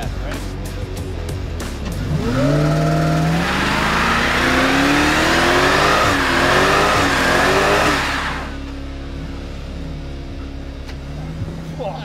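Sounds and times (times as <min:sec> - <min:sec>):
car engine revving high: 0:01.8 - 0:08.7.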